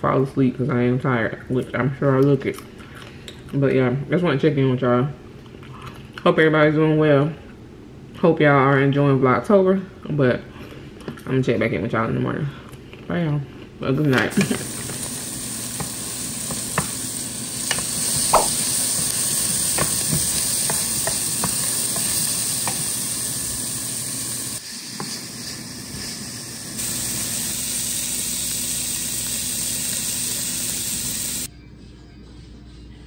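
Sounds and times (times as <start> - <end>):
food sizzling in a skillet: 14.3 - 31.5.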